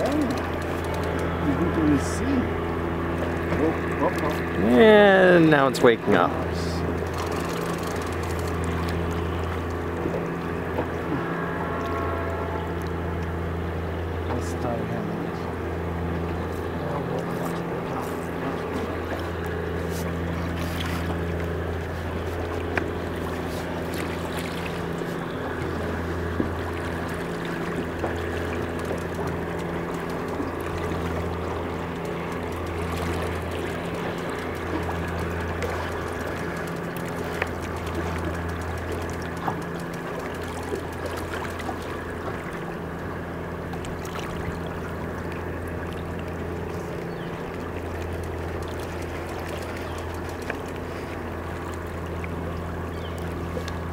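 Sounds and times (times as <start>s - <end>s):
faint clicks: 0.0s - 1.3s, 28.4s - 41.6s, 47.6s - 51.9s
boat engine humming: 0.0s - 53.9s.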